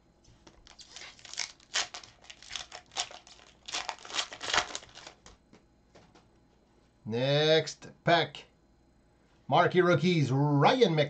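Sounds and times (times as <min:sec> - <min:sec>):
foil wrappers crinkling: 0:00.5 - 0:05.3.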